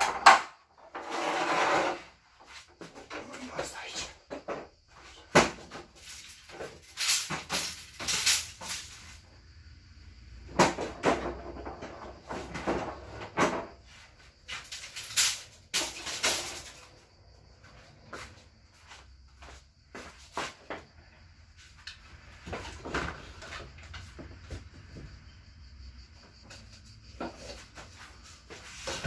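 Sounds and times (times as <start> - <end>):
household items knocking and clattering: 0.0 - 1.9, 4.3 - 9.1, 10.5 - 13.8, 28.6 - 29.0.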